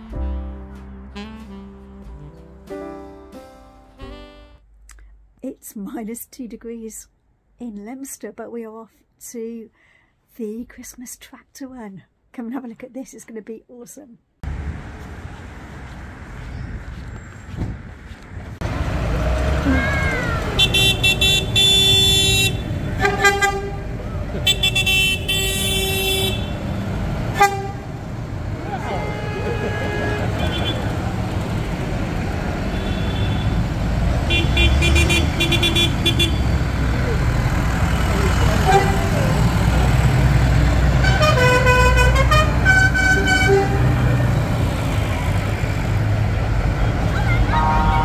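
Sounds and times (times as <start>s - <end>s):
tractor horns honking: 0.0s - 2.7s, 4.0s - 4.6s, 18.7s - 45.3s, 47.1s - 48.0s
horn playing short tune: 0.0s - 2.8s, 3.9s - 4.6s, 41.0s - 44.0s, 47.5s - 48.0s
tractor engines rumbling: 14.4s - 48.0s.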